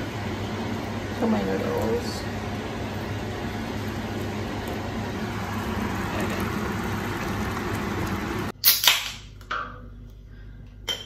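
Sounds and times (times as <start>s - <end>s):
pot rushing noise on hob: 0.0s - 8.5s
can snapping open: 8.6s - 9.2s.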